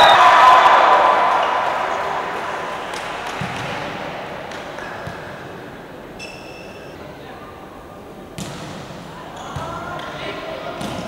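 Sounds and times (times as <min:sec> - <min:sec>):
referee's whistle: 0:00.0 - 0:00.6
crowd noise in sports hall: 0:00.0 - 0:11.0
volleyball bounces: 0:08.4 - 0:11.0.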